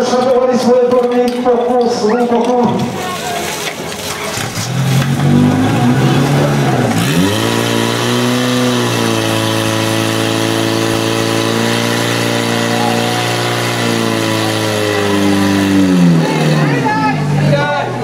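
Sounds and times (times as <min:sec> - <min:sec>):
pump engine revving: 0:02.5 - 0:17.6.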